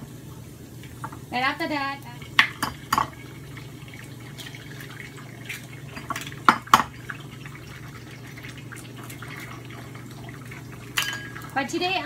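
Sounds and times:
eggs sizzling in hot oil: 0.0s - 12.0s.

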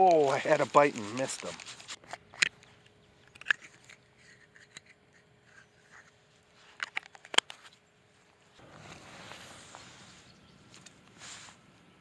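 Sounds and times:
small clicks and scrapes: 0.0s - 7.8s.

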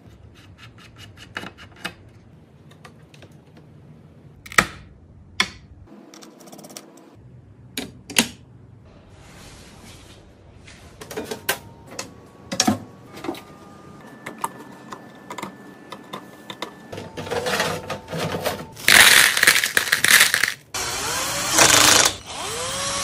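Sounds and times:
power screwdriver whirring: 20.8s - 23.0s.

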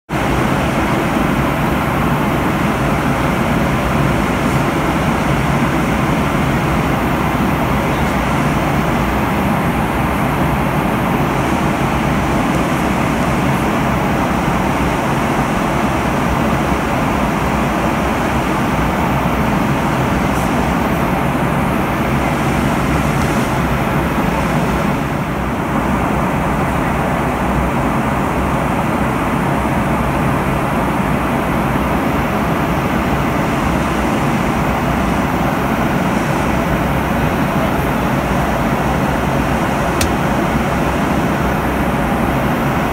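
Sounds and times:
airliner engine and airflow noise: 0.1s - 42.9s.

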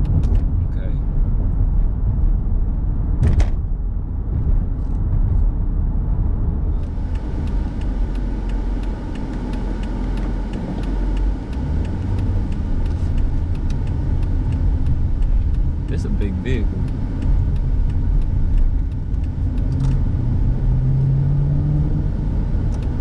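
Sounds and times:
car engine and road rumble: 0.0s - 23.0s
faint regular ticking: 6.8s - 20.1s.

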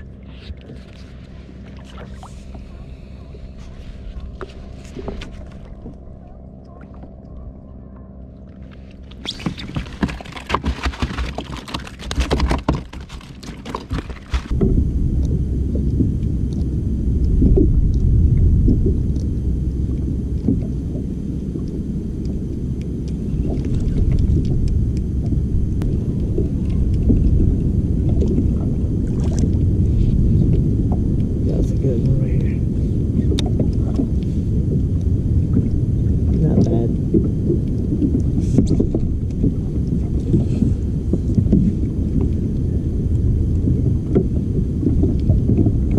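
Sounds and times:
water splashing: 0.0s - 7.1s, 8.5s - 14.8s, 22.8s - 42.7s
wind buffeting microphone: 14.3s - 21.2s, 21.8s - 45.9s.

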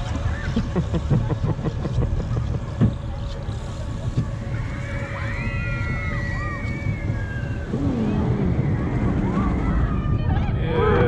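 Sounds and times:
roller coaster rumbling on track: 0.0s - 11.0s
wind on microphone: 6.2s - 11.0s.

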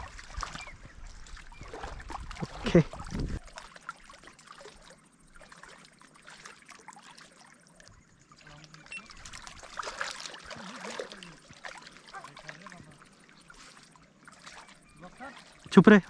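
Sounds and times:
water trickling and lapping: 0.0s - 16.0s.

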